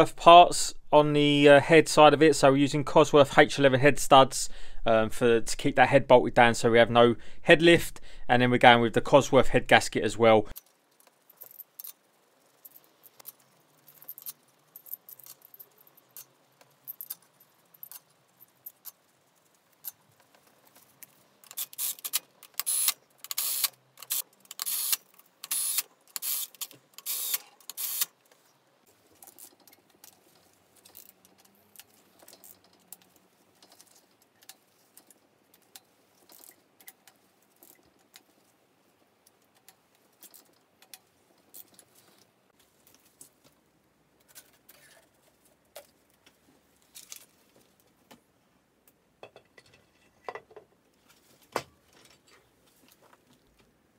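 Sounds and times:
metal parts and tools clinking: 10.6 - 19.1.

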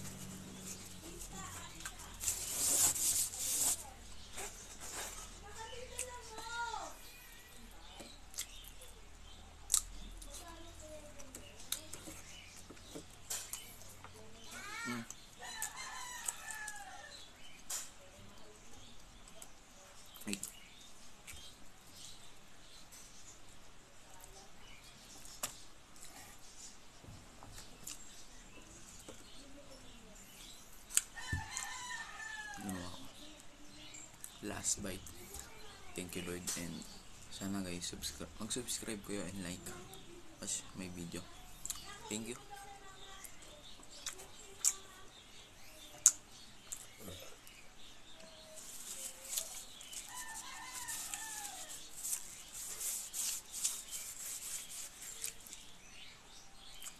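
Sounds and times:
rooster crowing: 50.1 - 51.8.

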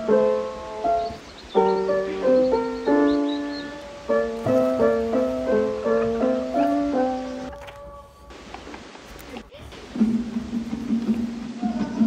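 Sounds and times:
soft solo piano melody: 0.0 - 8.2.

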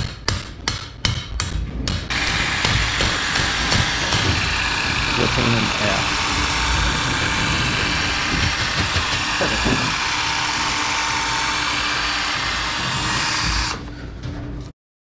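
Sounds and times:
machinery droning: 2.1 - 14.6.

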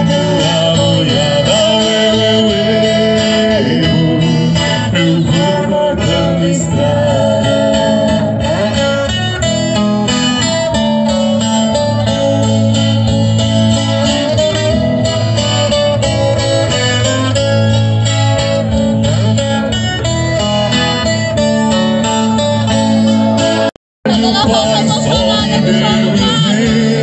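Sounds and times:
acoustic guitars playing: 0.0 - 27.0
bass line: 0.0 - 27.0.

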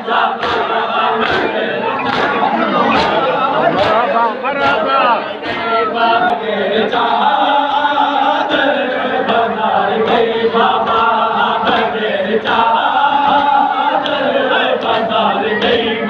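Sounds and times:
men chanting a lament: 0.0 - 16.0
sharp slaps: 0.4 - 3.2.

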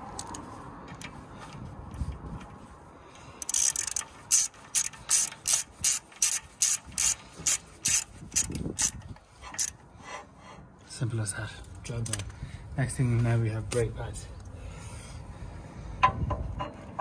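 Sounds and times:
hand ratchet clicking: 3.4 - 9.8.

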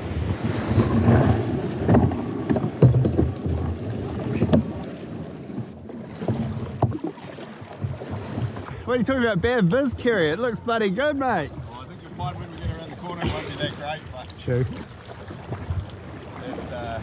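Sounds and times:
water splashing and sloshing: 0.0 - 17.0
sharp knocks against kayak hull: 1.8 - 4.8.

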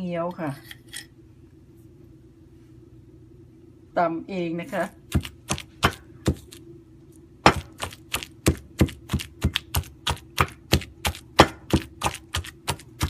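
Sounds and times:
stone pestle pounding in mortar: 5.1 - 6.6, 7.4 - 13.0.

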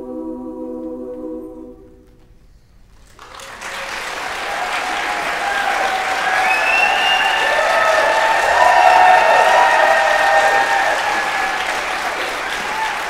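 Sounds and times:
audience applause: 3.0 - 13.0.

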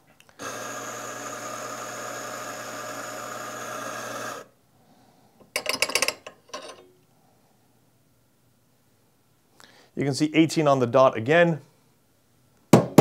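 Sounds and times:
coffee grinder grinding: 0.3 - 4.5.

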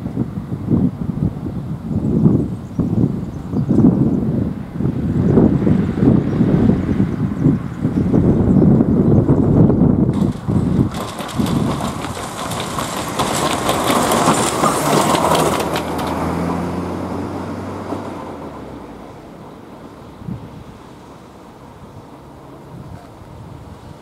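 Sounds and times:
wind buffeting microphone: 0.0 - 24.0
car crossing railway tracks: 7.3 - 24.0.

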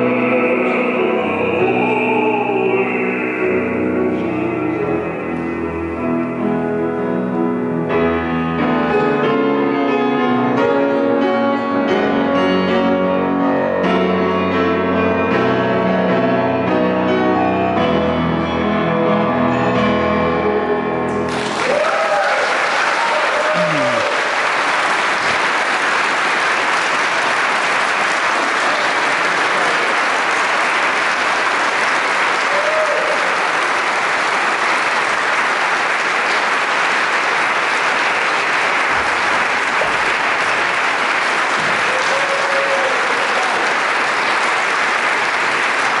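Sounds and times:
audience applauding: 21.1 - 46.0.

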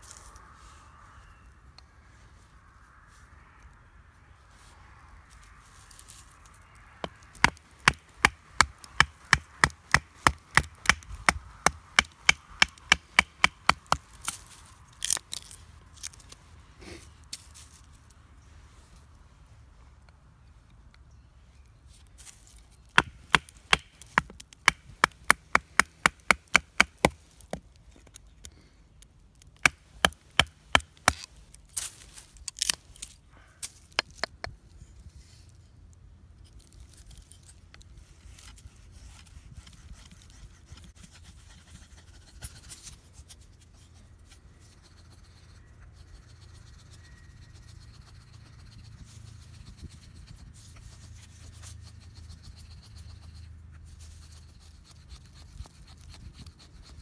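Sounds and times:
knife scraping wood: 29.6 - 33.1, 38.4 - 57.0.

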